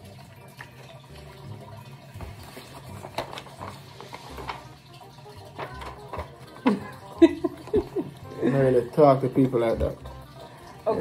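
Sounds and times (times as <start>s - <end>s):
paper rustling: 2.2s - 4.8s.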